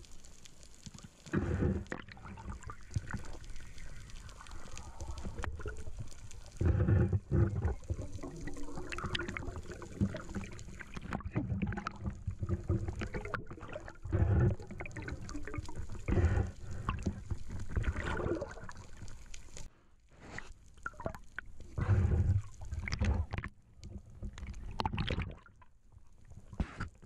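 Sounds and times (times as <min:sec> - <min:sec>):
water sloshing and rushing: 0:01.3 - 0:19.7.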